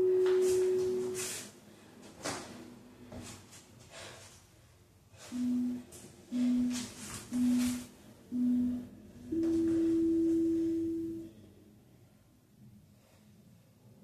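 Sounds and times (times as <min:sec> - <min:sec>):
interval timer beeps: 0:00.0 - 0:01.2, 0:05.3 - 0:11.3.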